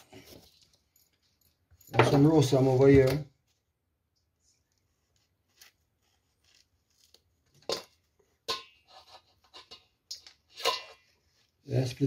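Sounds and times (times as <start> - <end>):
knife scraping yam: 5.2 - 8.0, 8.7 - 9.9.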